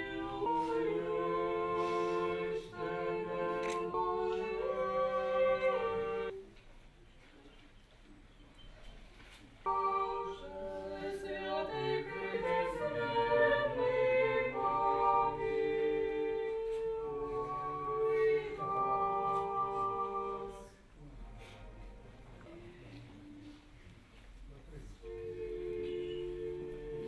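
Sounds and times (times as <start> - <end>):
a cappella choir singing: 0.0 - 6.4, 9.7 - 21.6, 24.8 - 27.0.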